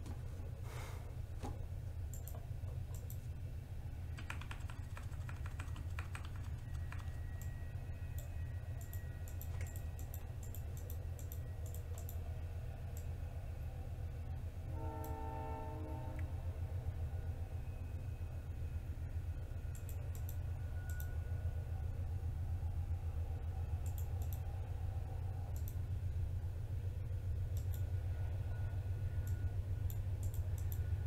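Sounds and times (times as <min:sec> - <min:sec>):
horn-like tone: 0:14.7 - 0:16.4.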